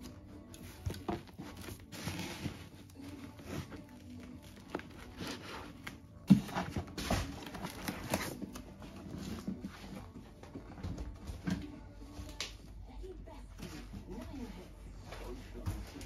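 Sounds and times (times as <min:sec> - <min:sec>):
rustling and scraping on foam: 0:00.5 - 0:10.4.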